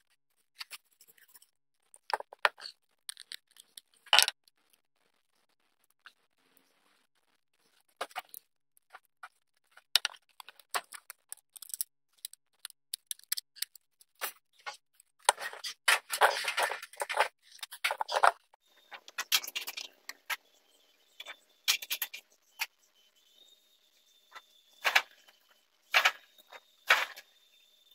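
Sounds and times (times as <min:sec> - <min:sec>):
small parts clicking on workbench: 0:10.0 - 0:13.8.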